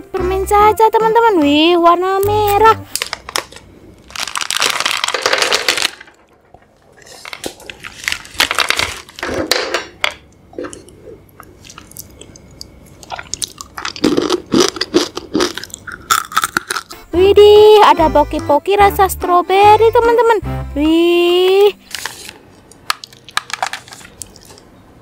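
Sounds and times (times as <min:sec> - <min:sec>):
plastic wrapper crinkling: 0:02.9 - 0:09.5, 0:21.8 - 0:24.7
candies clicking and crunching: 0:02.9 - 0:09.8, 0:10.7 - 0:17.0, 0:21.8 - 0:24.7.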